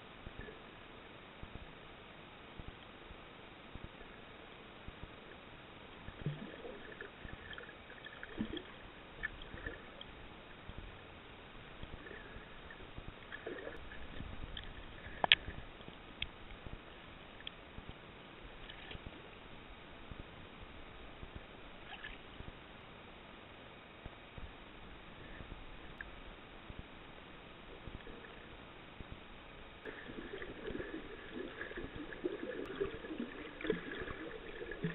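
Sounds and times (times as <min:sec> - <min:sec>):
muffled underwater wash: 0:00.0 - 0:34.9
small underwater clicks and knocks: 0:12.6 - 0:18.0, 0:18.6 - 0:19.2.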